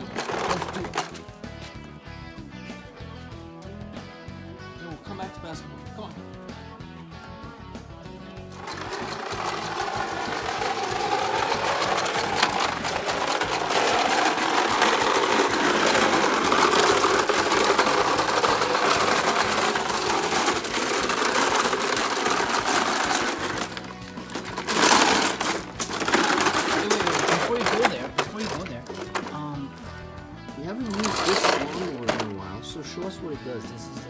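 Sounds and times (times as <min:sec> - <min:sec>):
toy lawn mower rattling: 0:00.0 - 0:01.4, 0:08.5 - 0:29.6, 0:30.7 - 0:32.7.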